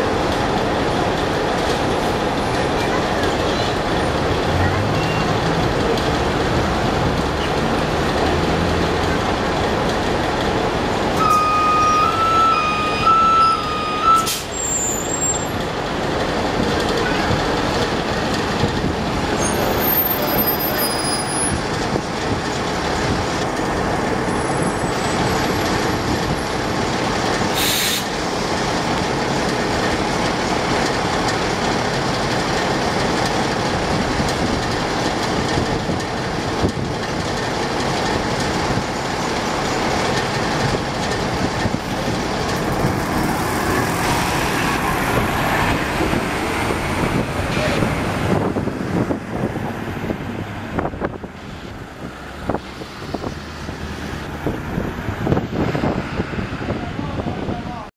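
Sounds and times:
bus diesel engine idling: 0.0s - 57.9s
two-pitch electronic warning tone: 11.2s - 14.3s
air hiss: 27.6s - 28.2s.

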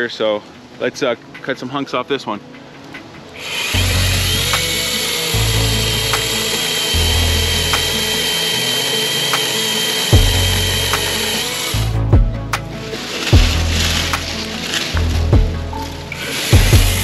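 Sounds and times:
electric chainsaw motor whining: 3.4s - 12.0s, 12.9s - 17.0s.

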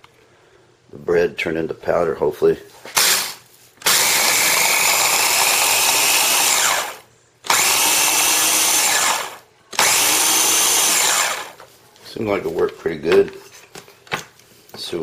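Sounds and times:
food chopper motor grinding: 2.9s - 11.6s.

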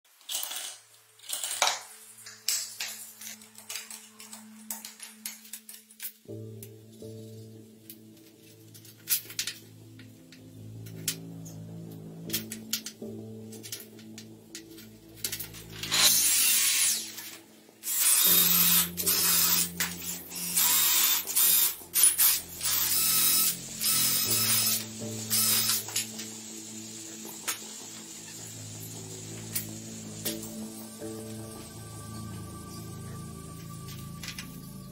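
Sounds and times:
cordless drill boring into wood: 15.9s - 17.2s, 17.8s - 25.9s.

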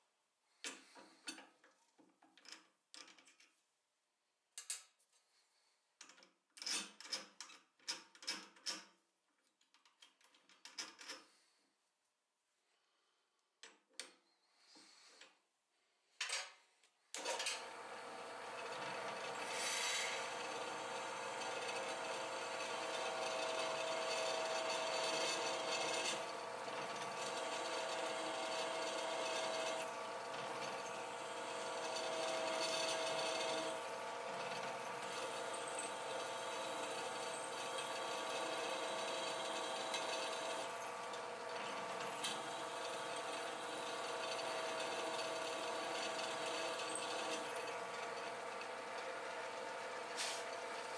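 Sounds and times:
drill press drilling metal: 17.2s - 50.9s.

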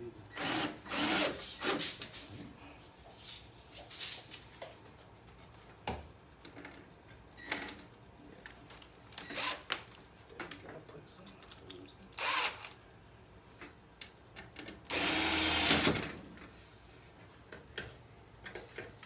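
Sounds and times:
cordless drill driving screws: 0.4s - 1.8s, 9.3s - 9.7s, 12.2s - 12.8s, 14.9s - 16.0s.

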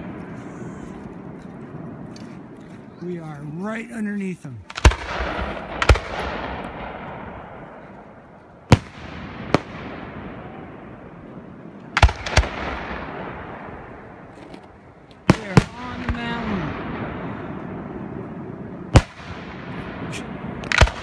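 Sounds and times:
firework shells bursting: 4.6s - 7.6s.

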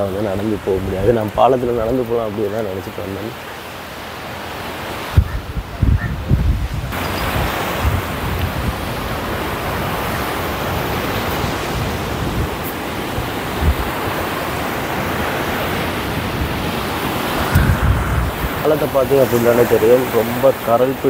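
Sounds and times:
surf breaking on shore: 0.0s - 21.0s
wind buffeting microphone: 0.0s - 21.0s.

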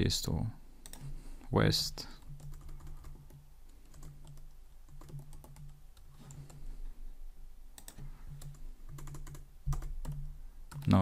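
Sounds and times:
computer keyboard typing: 0.8s - 1.1s, 2.2s - 6.6s, 7.8s - 11.0s.

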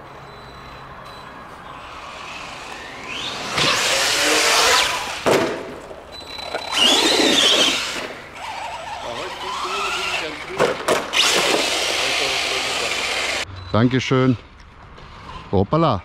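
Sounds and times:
tyres churning dirt: 1.4s - 13.5s
electric motor whining: 1.8s - 5.2s, 6.4s - 13.4s.

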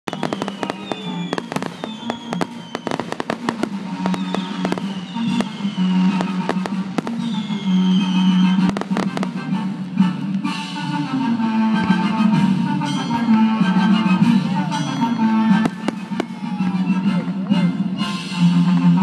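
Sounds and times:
music playing: 0.0s - 19.0s
firework shells bursting: 0.1s - 8.0s.

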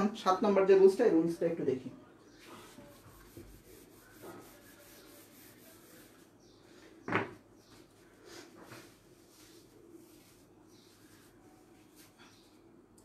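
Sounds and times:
wiping whiteboard: 2.4s - 6.6s, 7.6s - 12.5s.

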